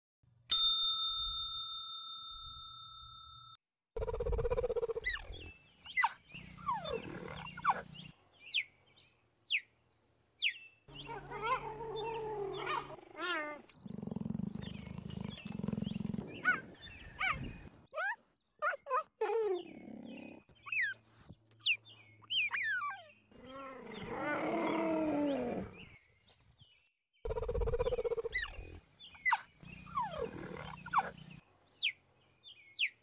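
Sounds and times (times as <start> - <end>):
cheetah yelps: 22.3 - 24.3.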